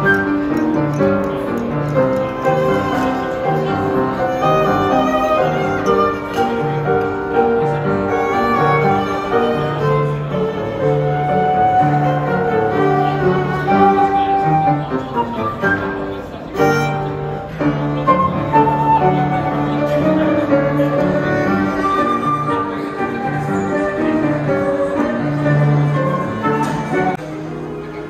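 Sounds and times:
piano accompaniment: 0.0 - 28.0
violin melody: 0.0 - 28.0.

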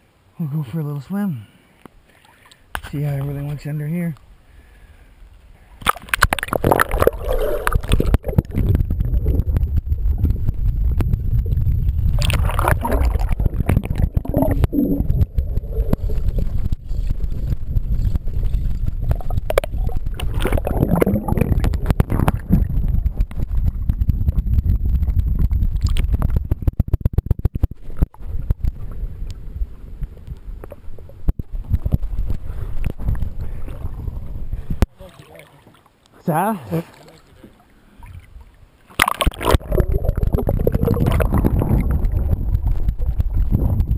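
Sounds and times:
water splashes and clicks: 1.8 - 4.3, 5.8 - 29.4, 30.0 - 33.4, 36.9 - 43.9
underwater rumble and gurgling: 4.7 - 34.9, 37.6 - 43.9.

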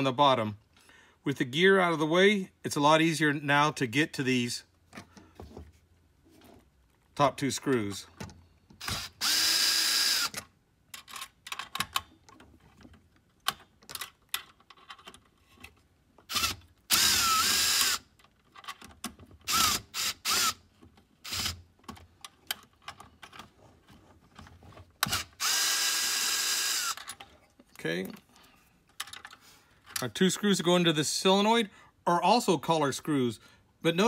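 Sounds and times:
electric nut driver running: 8.8 - 10.4, 16.3 - 18.0, 19.5 - 20.6, 21.2 - 21.6, 25.0 - 27.1
bit and screws clicking and rattling: 10.2 - 17.2, 17.8 - 25.8, 26.6 - 30.1.

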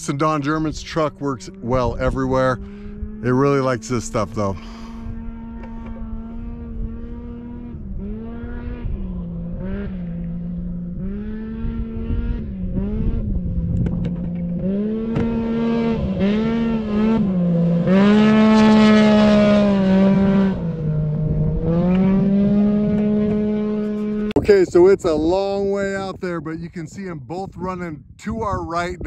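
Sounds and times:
truck engine revving hard: 14.6 - 24.4.

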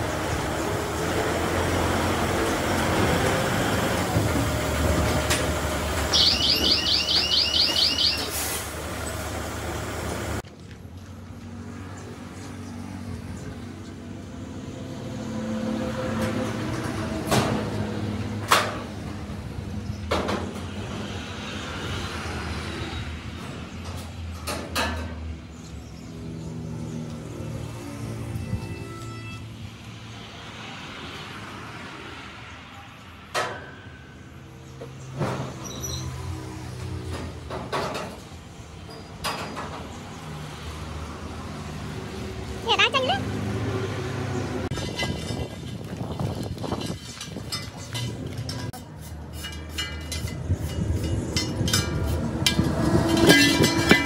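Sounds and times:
high chirps: 6.1 - 8.5.

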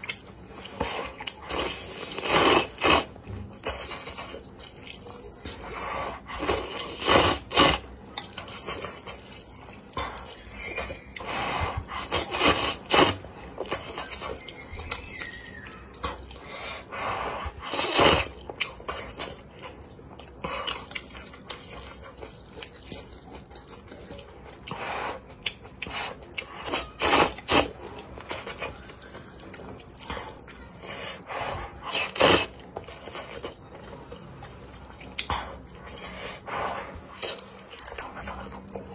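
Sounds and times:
chewing: 0.0 - 38.9
person slurping noodles: 0.7 - 4.2, 5.6 - 14.2, 16.3 - 19.0, 24.6 - 29.0, 29.9 - 33.4.

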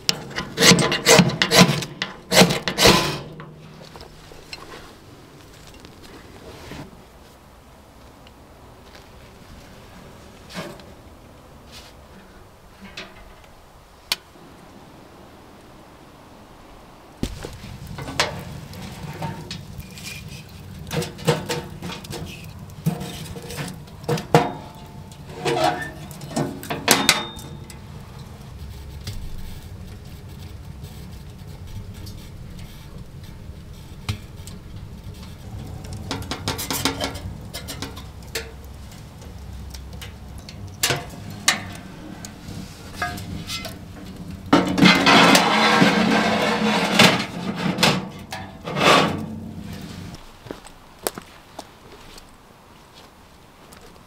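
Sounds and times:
stove doors opening and shutting: 0.0 - 4.8, 17.4 - 27.8, 35.1 - 50.1
pizza peel scraping metal: 0.2 - 3.8, 18.0 - 27.7, 41.0 - 50.2
metal clinks and knocks of stove: 18.0 - 27.9, 35.8 - 42.3.

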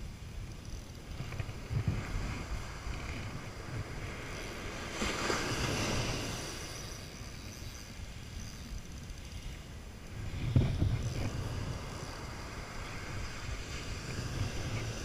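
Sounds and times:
wind on microphone: 0.0 - 15.0
surf washing up beach: 1.5 - 7.0, 10.1 - 15.0.

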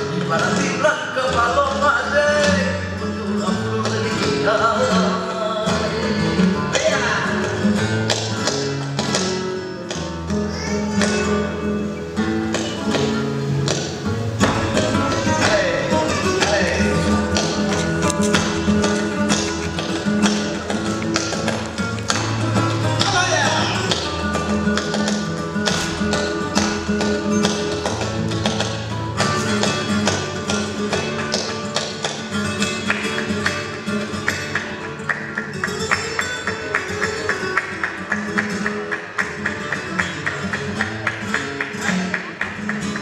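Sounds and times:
flamenco guitar music: 0.0 - 43.0
sharp percussive taps: 12.5 - 43.0.

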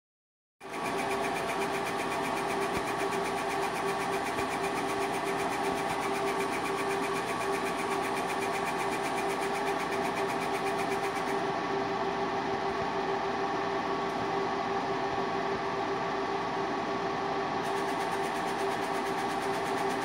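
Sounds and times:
machine hum: 0.6 - 20.0
laser engraver head shuttling: 0.7 - 11.4.

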